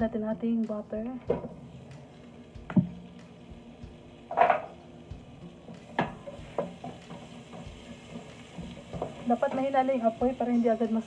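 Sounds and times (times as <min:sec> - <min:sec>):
wooden spoon knocking on steel pot: 0:05.8 - 0:09.8.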